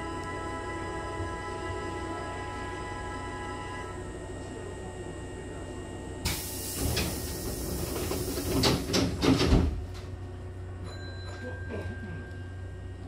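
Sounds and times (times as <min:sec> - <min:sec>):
low hum of train: 0:00.0 - 0:13.0
train door hiss: 0:06.2 - 0:09.5
sliding doors thudding shut: 0:06.3 - 0:09.9.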